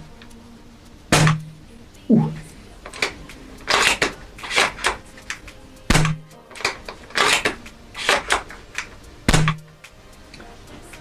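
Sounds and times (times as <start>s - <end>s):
spring rifle shot snap: 1.1s - 1.6s, 2.2s - 9.7s
rifle bolt clacking: 2.2s - 9.8s.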